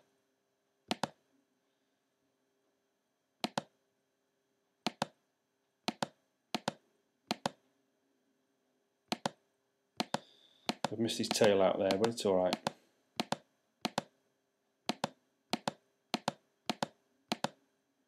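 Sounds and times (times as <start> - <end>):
mouse button clicking: 10.0 - 14.1.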